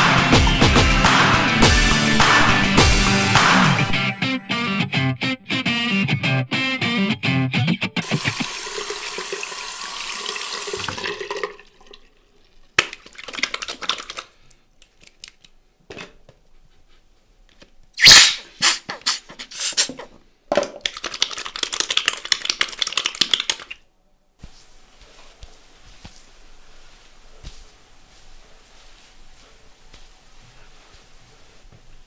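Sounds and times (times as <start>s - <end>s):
water splashing and dripping: 8.1s - 14.3s.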